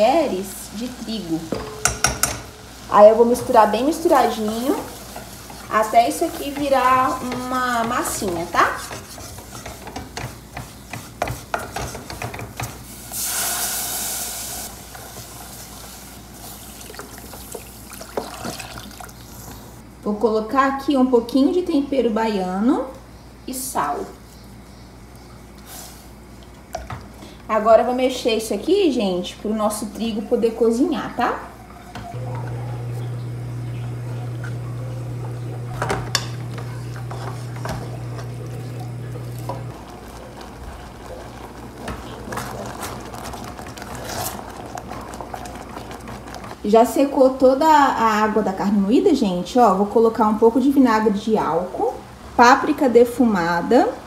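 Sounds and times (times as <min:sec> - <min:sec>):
spoon knocking against pot: 0:01.5 - 0:02.5
wooden spoon scraping a saucepan: 0:01.5 - 0:13.3, 0:31.8 - 0:46.6
milk hissing on hot roux: 0:01.8 - 0:19.8, 0:36.4 - 0:46.6
steady low hum: 0:31.6 - 0:46.6.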